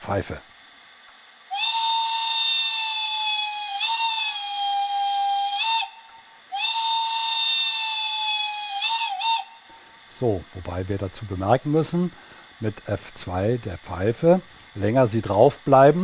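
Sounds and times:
model train steam whistle: 1.5 - 10.1.

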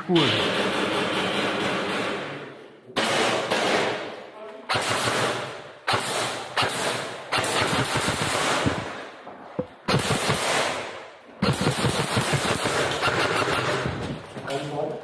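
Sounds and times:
airsoft guns firing bursts: 0.4 - 2.3, 4.7 - 9.0, 9.8 - 14.3.

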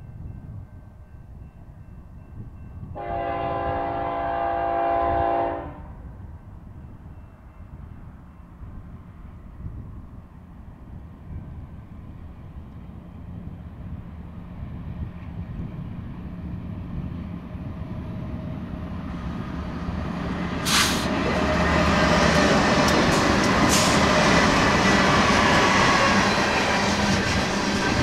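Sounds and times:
wheels rushing on rail: 0.0 - 28.0
locomotive engines droning: 6.0 - 28.0
sharp hiss bursts: 20.6 - 21.2.

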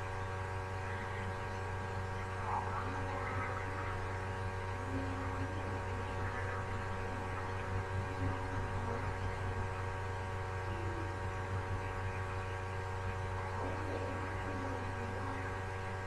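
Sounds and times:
electrical hum with tones: 0.0 - 16.0.

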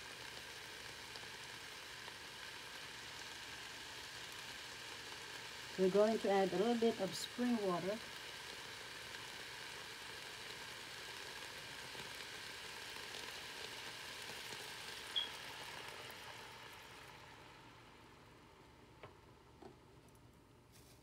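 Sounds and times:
vegetables sizzling in oil: 0.0 - 19.5
short high chirp: 15.2 - 15.4.

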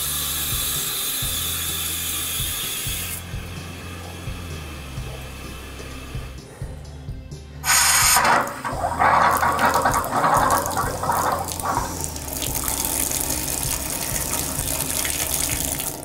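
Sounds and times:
water running into bathtub: 7.6 - 16.0.

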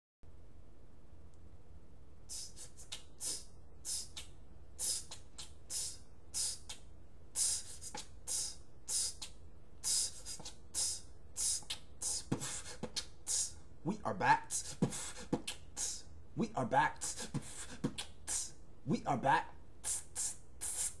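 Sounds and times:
low steady hum: 0.3 - 21.0
man whispering: 2.3 - 4.2, 7.4 - 21.0.

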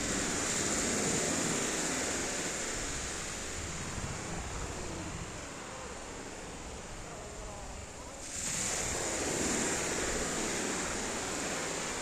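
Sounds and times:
surf washing up pebble beach: 0.0 - 3.4, 8.2 - 12.0.

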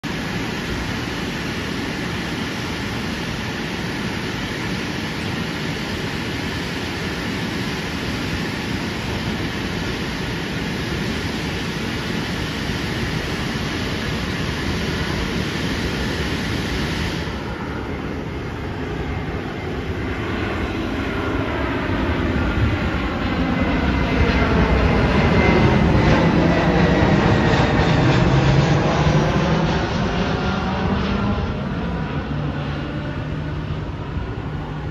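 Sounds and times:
jet airliner rushing overhead: 0.0 - 34.9.

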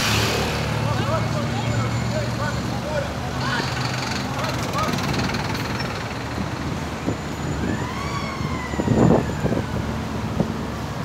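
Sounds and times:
highway traffic passing: 0.0 - 11.0
truck passing: 0.0 - 11.0
siren: 7.0 - 10.6.

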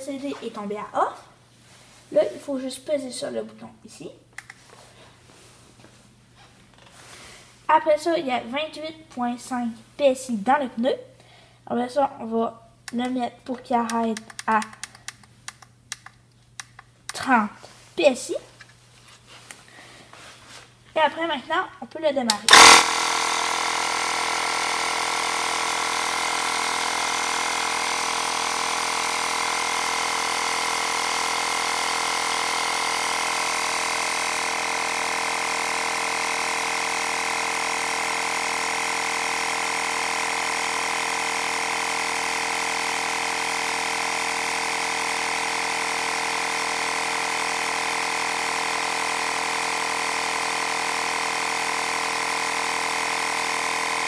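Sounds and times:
air compressor running: 19.0 - 20.8, 22.3 - 54.0.

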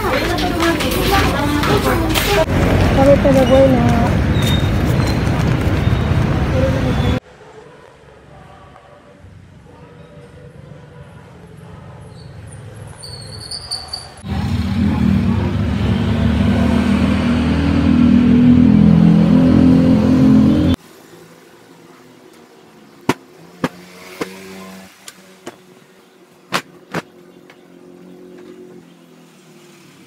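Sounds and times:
loud motor engine running: 14.2 - 20.8.

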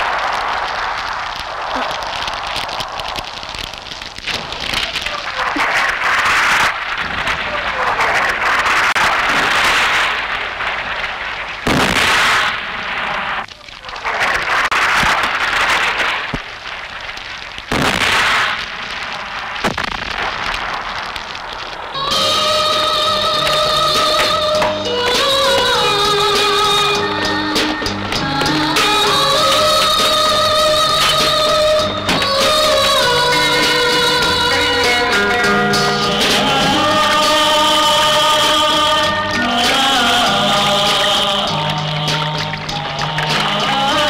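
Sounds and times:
explosions: 0.0 - 22.1
gunfire: 4.3 - 13.4, 14.0 - 16.5, 17.7 - 21.0.

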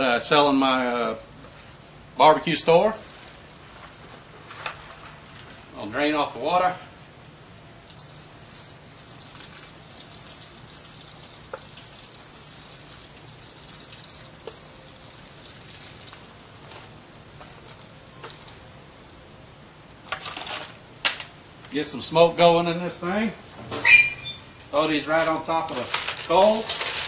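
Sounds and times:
water trickling and pattering: 7.8 - 19.5.

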